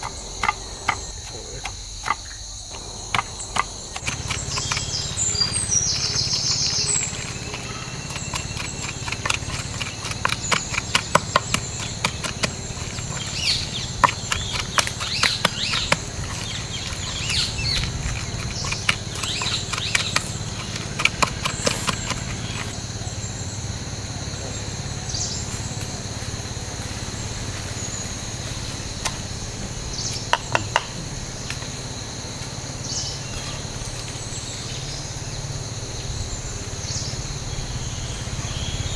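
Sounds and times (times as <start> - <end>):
high insect chorus: 0.0 - 38.9
wooden pestle knocking in mortar: 7.0 - 22.8, 30.3 - 31.0.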